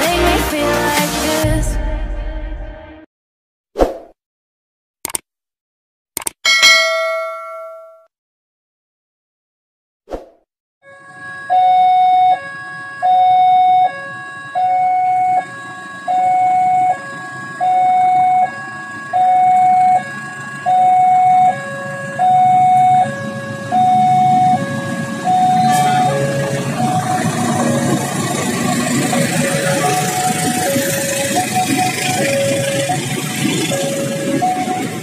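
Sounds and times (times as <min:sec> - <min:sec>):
level crossing alarm high-low tones: 0:10.9 - 0:35.0
diesel locomotive rumble: 0:15.2 - 0:35.0.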